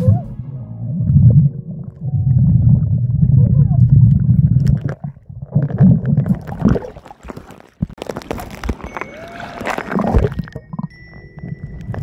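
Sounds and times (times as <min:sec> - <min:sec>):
muffled underwater rumble: 0:00.0 - 0:06.9
water sloshing and gurgling: 0:01.0 - 0:12.0
splashes: 0:04.6 - 0:10.6.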